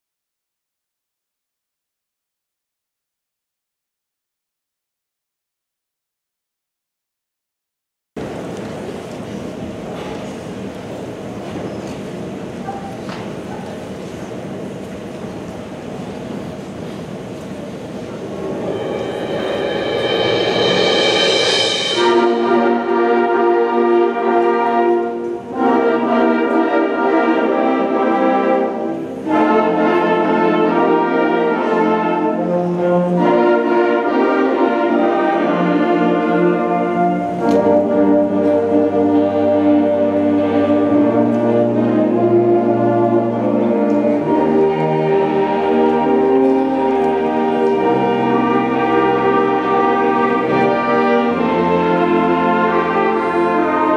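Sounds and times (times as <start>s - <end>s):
concert band playing chords: 18.2s - 53.9s.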